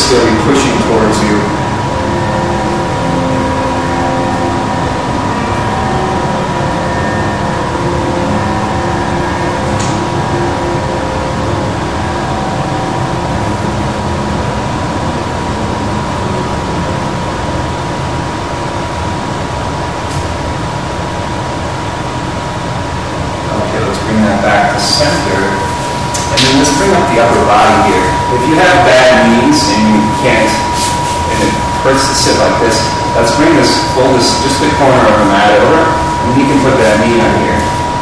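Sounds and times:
faint hum: 0.0s - 38.0s
rushing background noise: 0.0s - 38.0s.

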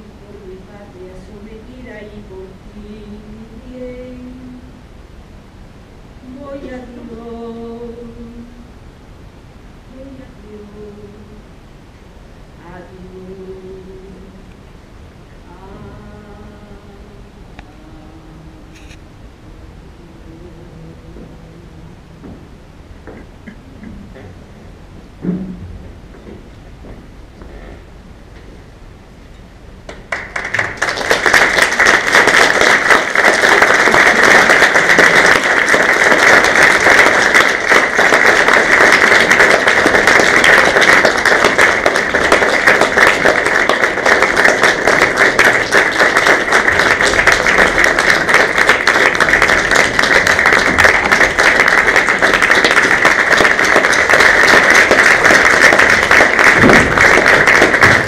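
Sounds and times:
audience applauding: 29.9s - 58.0s.

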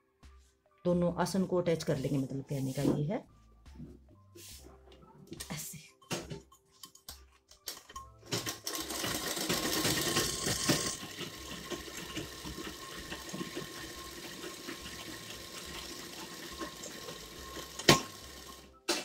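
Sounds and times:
sewing machine running: 8.2s - 18.7s.

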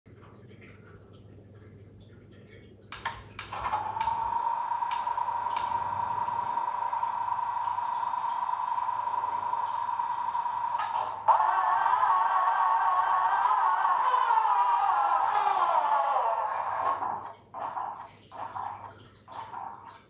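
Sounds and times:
steady high-pitched whine: 3.5s - 18.6s.

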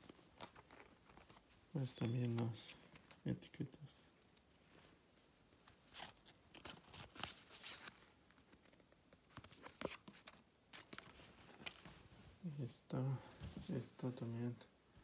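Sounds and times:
paper tags rustling and clicking: 0.0s - 3.3s.

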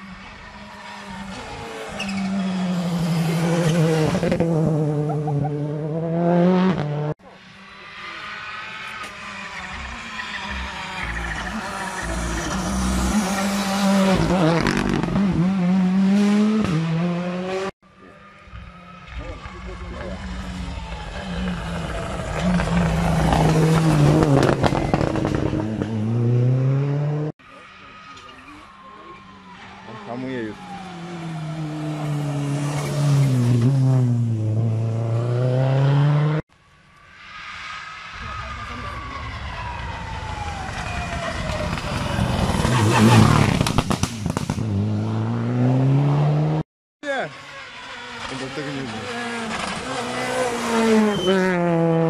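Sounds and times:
rally car engine at high revs: 1.3s - 17.7s, 19.3s - 27.3s, 30.6s - 36.4s, 42.2s - 46.6s, 47.4s - 52.0s.

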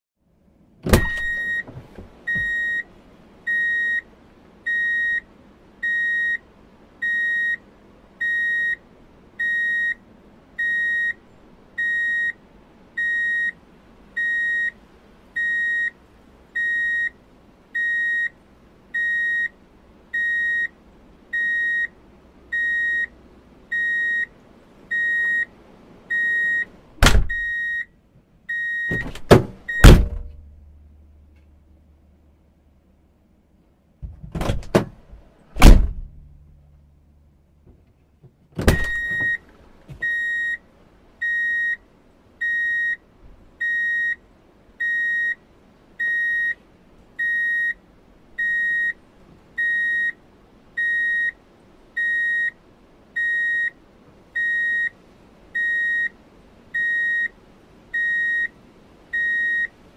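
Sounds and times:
loud clunks: 0.8s - 2.6s, 27.0s - 27.5s, 28.9s - 30.5s, 34.0s - 36.4s, 38.6s - 40.1s
vehicle reversing alert beeping: 1.0s - 1.7s, 2.3s - 2.9s, 3.5s - 4.1s, 4.7s - 6.4s, 7.0s - 7.6s, 8.2s - 8.8s, 9.4s - 10.0s, 10.6s - 11.2s, 11.8s - 12.4s, 13.0s - 13.6s, 14.2s - 14.8s, 15.4s - 16.0s, 16.6s - 17.2s, 17.8s - 19.6s, 20.2s - 20.7s, 21.4s - 21.9s, 22.5s - 23.1s, 23.7s - 24.3s, 24.9s - 25.5s, 26.1s - 26.7s, 27.3s - 27.9s, 28.5s - 29.1s, 29.7s - 30.1s, 38.7s - 39.4s, 40.0s - 40.6s, 41.2s - 41.8s, 42.4s - 43.0s, 43.6s - 44.2s, 44.8s - 45.4s, 46.0s - 46.6s, 47.2s - 47.8s, 48.4s - 49.0s, 49.6s - 50.2s, 50.8s - 51.4s, 52.0s - 52.6s, 53.2s - 53.8s, 54.4s - 55.0s, 55.6s - 56.2s, 56.8s - 57.4s, 58.0s - 58.5s, 59.2s - 59.7s.

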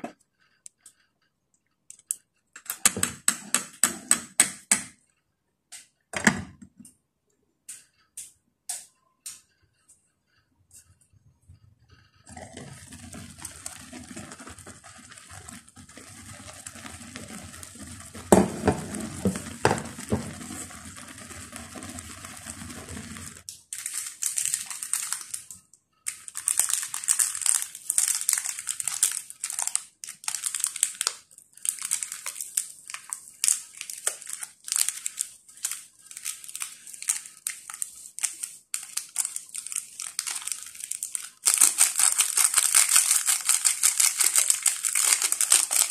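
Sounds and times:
simmering pot: 11.8s - 23.7s
foil sachets crinkling and tearing: 12.3s - 45.9s.

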